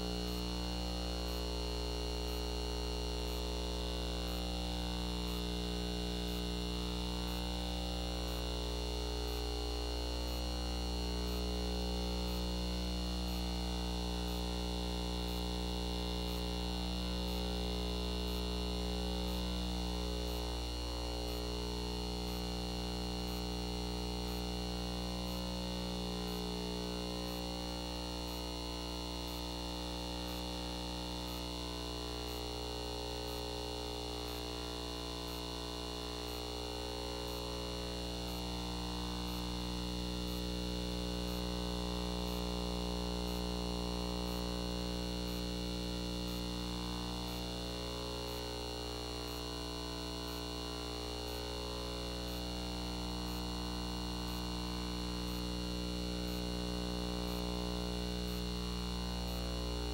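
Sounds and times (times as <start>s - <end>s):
electrical hum and buzz: 0.0s - 59.9s.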